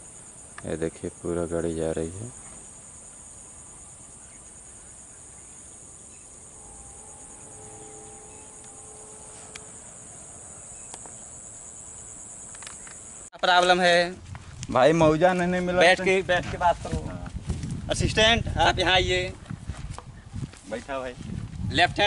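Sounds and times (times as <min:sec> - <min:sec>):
insects chirring: 0:00.0 - 0:22.0
faint held tone: 0:02.5 - 0:13.3.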